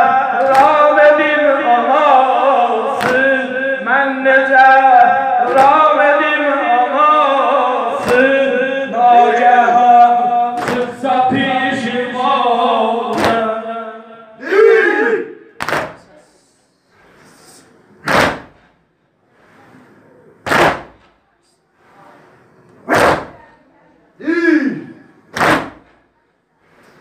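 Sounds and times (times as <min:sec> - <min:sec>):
man chanting into a microphone: 0:00.0 - 0:16.4
chest beating in unison: 0:13.1 - 0:13.6, 0:15.6 - 0:16.2, 0:18.0 - 0:18.7, 0:20.4 - 0:21.2, 0:22.8 - 0:23.5, 0:24.2 - 0:26.0.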